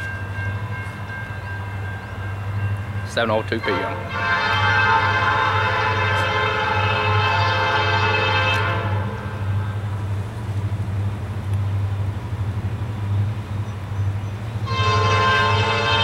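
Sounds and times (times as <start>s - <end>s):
train rumble: 0.0s - 16.0s
locomotive air horn: 3.6s - 9.8s, 14.6s - 16.0s.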